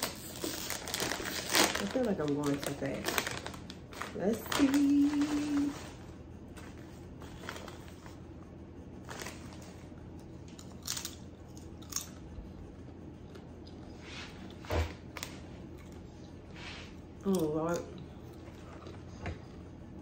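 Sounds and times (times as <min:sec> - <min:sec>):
potato chips crunching: 0:10.6 - 0:12.2.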